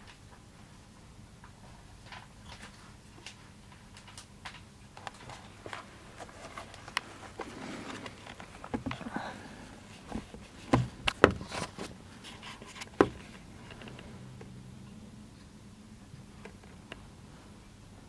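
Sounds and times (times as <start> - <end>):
faint low hum: 0.0 - 18.0
sharp clicks and knocks: 10.1 - 11.9.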